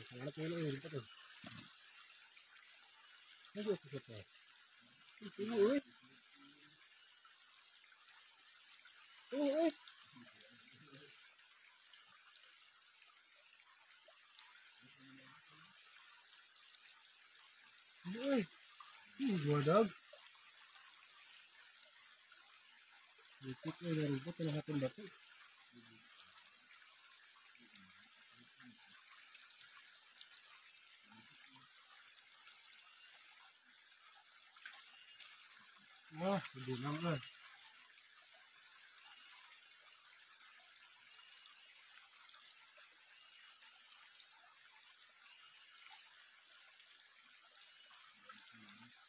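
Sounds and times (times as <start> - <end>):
stream trickling over rocks: 0.0 - 49.0
man's voice murmuring: 9.3 - 9.8.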